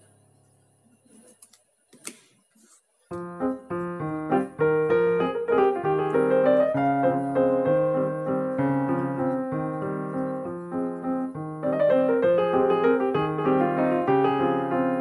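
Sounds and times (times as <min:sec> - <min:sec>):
piano music: 0:03.1 - 0:15.0.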